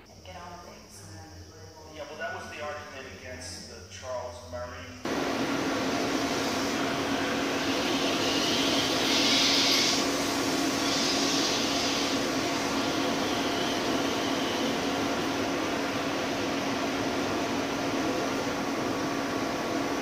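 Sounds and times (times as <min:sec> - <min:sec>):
ventilation fan whirring: 0:00.0 - 0:20.0
hissing air: 0:05.1 - 0:19.9.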